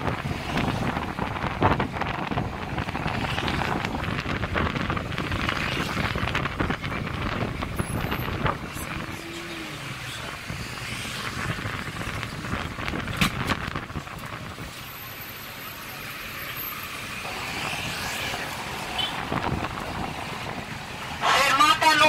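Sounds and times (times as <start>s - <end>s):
wind buffeting microphone: 0.0s - 14.7s, 19.1s - 20.8s
bus running: 0.0s - 22.0s
traffic: 0.0s - 22.0s.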